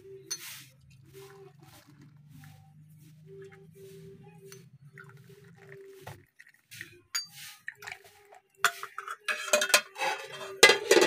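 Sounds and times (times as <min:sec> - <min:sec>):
tea strainer clinking against mugs: 0:00.3 - 0:02.0, 0:04.5 - 0:11.0.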